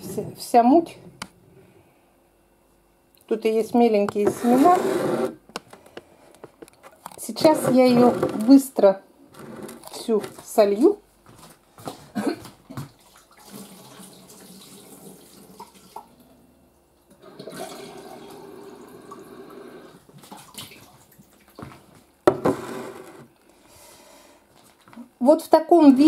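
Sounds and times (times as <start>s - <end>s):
jar filling with water: 17.2s - 19.6s.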